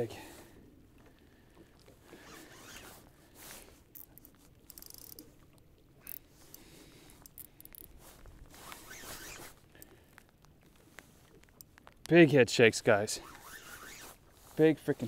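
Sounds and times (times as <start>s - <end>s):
fishing reel rapid clicks: 4.0s - 5.2s, 7.2s - 7.9s, 13.2s - 14.1s.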